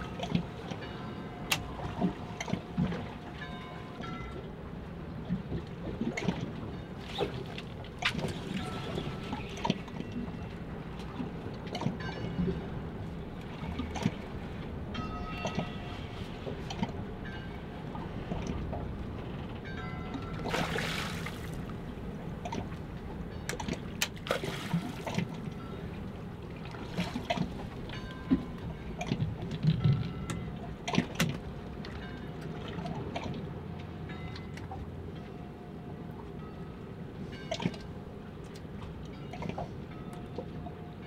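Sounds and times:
water lapping against boat hull: 0:00.0 - 0:41.0
water splashing: 0:20.4 - 0:21.8, 0:23.6 - 0:25.5.

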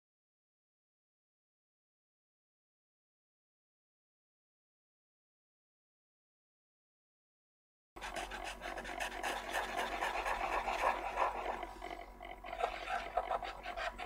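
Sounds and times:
marker scratching on paper: 0:08.0 - 0:11.8.

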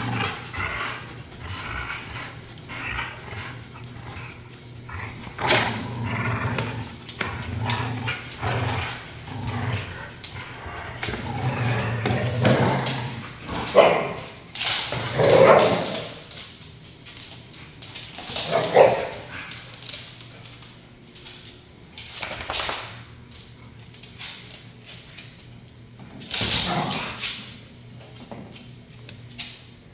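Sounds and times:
dogs snarling: 0:00.0 - 0:14.3
dogs growling: 0:00.0 - 0:16.2.

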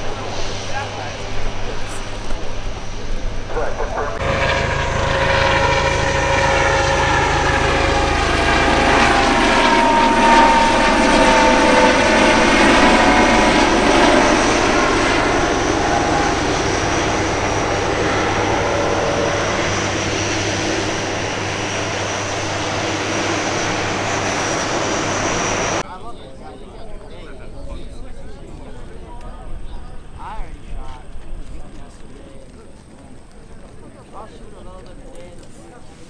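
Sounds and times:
helicopter flying past: 0:00.0 - 0:25.8.

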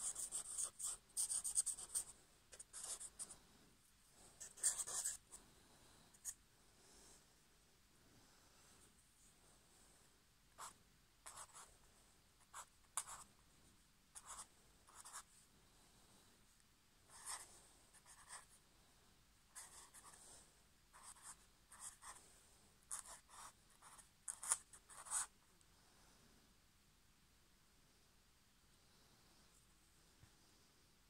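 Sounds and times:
marker pen scratching on paper: 0:00.0 - 0:03.4, 0:04.4 - 0:05.3, 0:10.6 - 0:11.7, 0:12.4 - 0:13.3, 0:14.2 - 0:15.3, 0:17.1 - 0:18.6, 0:19.5 - 0:20.2, 0:20.9 - 0:22.2, 0:22.9 - 0:25.3.

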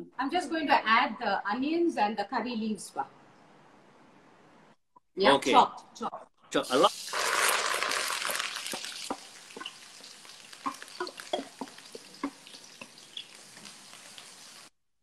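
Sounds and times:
onions sizzling in hot oil: 0:06.7 - 0:14.8
oil popping and clicking: 0:07.1 - 0:14.5
wooden spatula stirring: 0:07.2 - 0:14.7.

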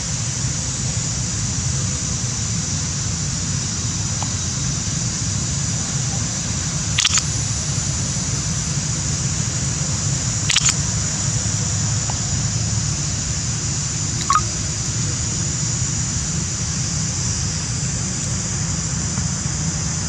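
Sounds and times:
brief clicks: 0:07.0 - 0:07.2, 0:10.5 - 0:10.8, 0:14.2 - 0:14.5
short sharp chirp: 0:07.0 - 0:07.2, 0:10.5 - 0:10.7, 0:14.2 - 0:14.5.

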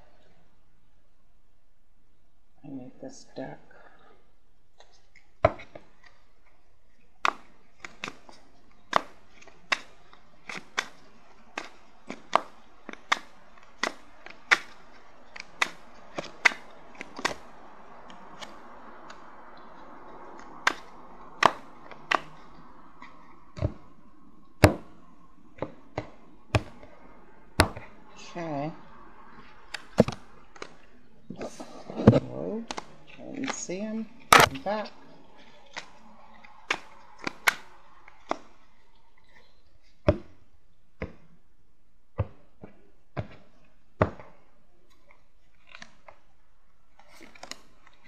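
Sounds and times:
cards shuffling rustle: 0:04.8 - 0:23.9, 0:29.3 - 0:30.8, 0:31.4 - 0:39.9, 0:46.9 - 0:48.0.

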